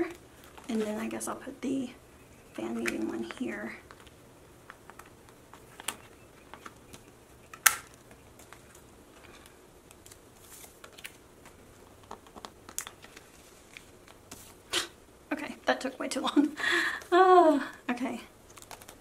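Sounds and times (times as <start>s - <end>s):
plastic pocket pages rustling: 0.0s - 1.3s, 2.7s - 14.6s, 18.4s - 19.0s.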